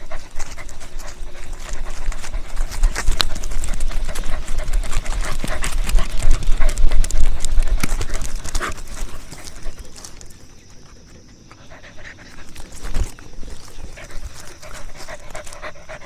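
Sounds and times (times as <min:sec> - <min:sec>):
wind rumble on microphone: 0:00.0 - 0:09.3.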